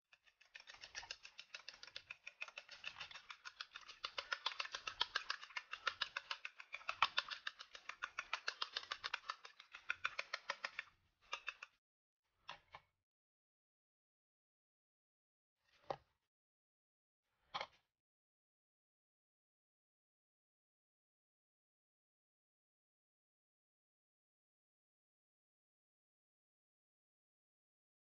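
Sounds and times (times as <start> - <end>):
fork beating egg in ceramic bowl: 0.1 - 11.7.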